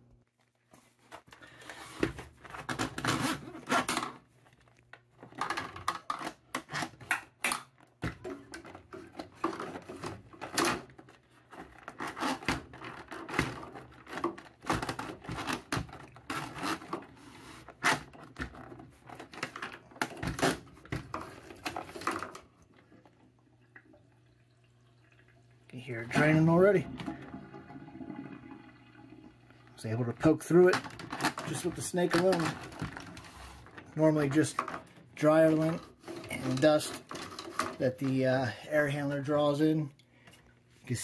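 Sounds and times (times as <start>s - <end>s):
drain snake cable rattling in pipe: 29.8s - 38.4s.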